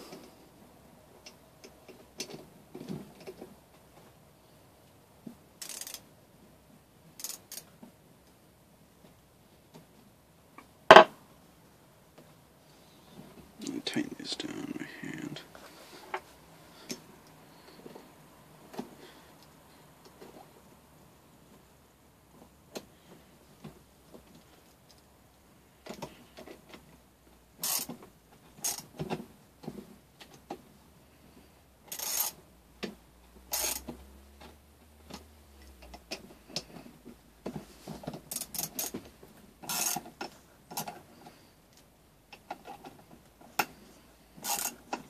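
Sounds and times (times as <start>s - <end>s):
tools and metal parts clicking: 5.6s - 6.0s, 7.2s - 7.7s, 31.9s - 32.4s, 44.4s - 44.8s.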